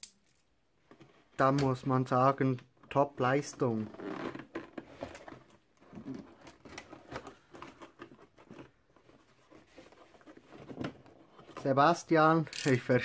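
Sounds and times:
cardboard scratching and rustling: 0:03.4 - 0:11.8.

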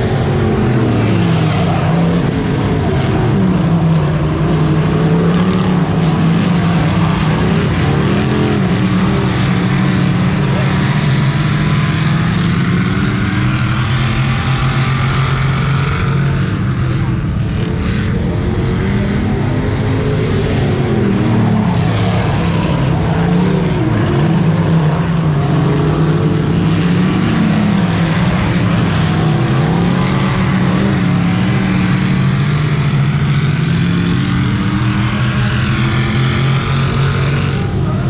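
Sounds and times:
race car engines: 0:00.0 - 0:38.0.

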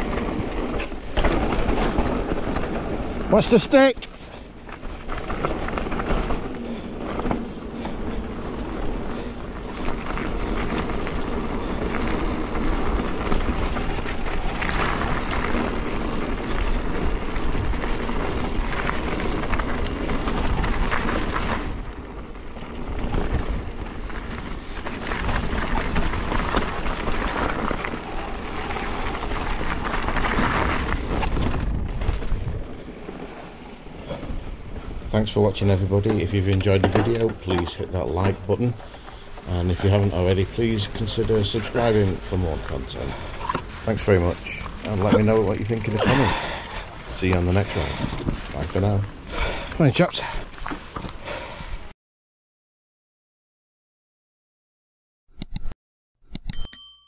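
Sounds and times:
tyres crunching over stones: 0:00.0 - 0:49.2
bike rattling: 0:00.0 - 0:51.9
wind rumbling on microphone: 0:04.2 - 0:36.7.

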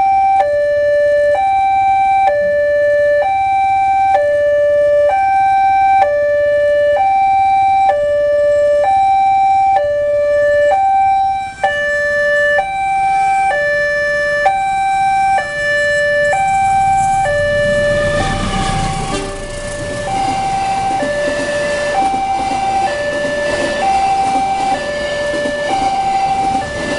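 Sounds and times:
level-crossing alarm two-tone: 0:00.0 - 0:26.9
train rumble: 0:15.3 - 0:26.9.

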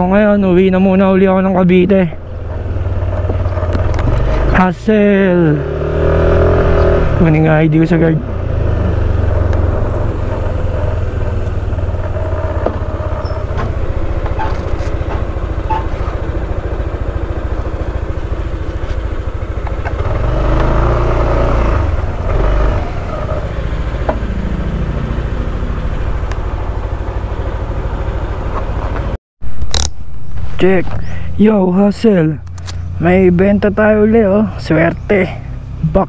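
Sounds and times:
scooter engine idling: 0:08.4 - 0:20.1, 0:22.9 - 0:29.0.

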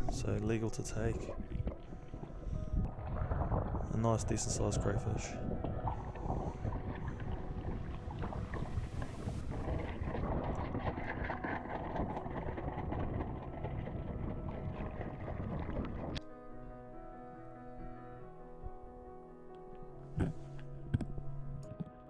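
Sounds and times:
piano music: 0:00.0 - 0:22.0
water sloshing against housing: 0:06.0 - 0:16.2.

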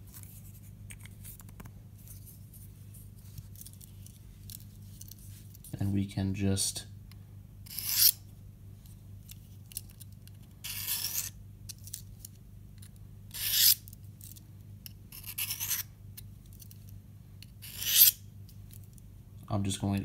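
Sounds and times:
knife blade scraping sharpening rod: 0:07.7 - 0:08.2, 0:10.7 - 0:11.3, 0:13.4 - 0:13.8, 0:17.6 - 0:18.2.

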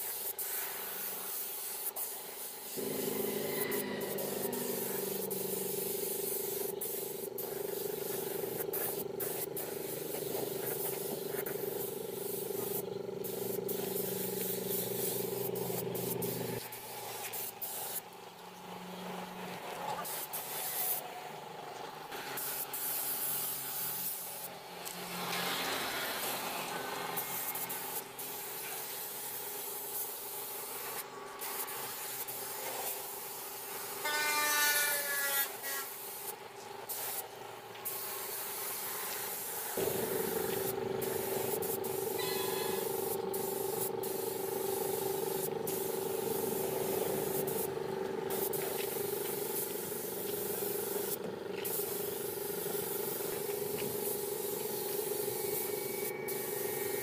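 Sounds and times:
paint spray gun hissing: 0:00.0 - 0:18.0, 0:22.4 - 0:24.4, 0:27.2 - 0:34.1, 0:34.8 - 0:37.2, 0:37.8 - 0:57.0
steady machine hum: 0:02.8 - 0:16.6, 0:39.8 - 0:50.6.

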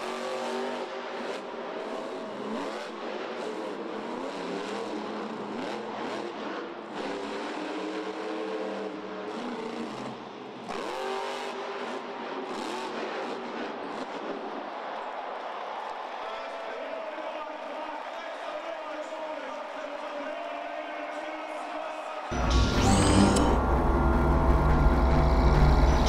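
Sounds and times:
truck engine revving hard: 0:00.0 - 0:14.4, 0:22.3 - 0:26.0.

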